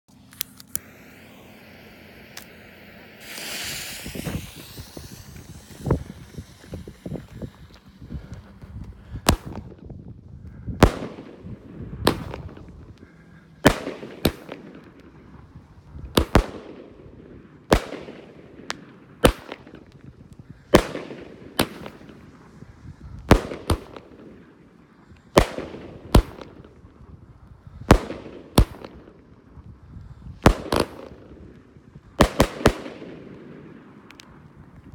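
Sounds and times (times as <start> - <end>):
firework bangs: 0.7 - 9.7.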